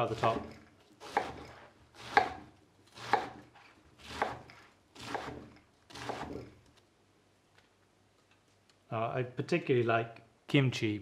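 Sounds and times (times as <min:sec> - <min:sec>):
knife chopping on wooden board: 0:00.0 - 0:06.5.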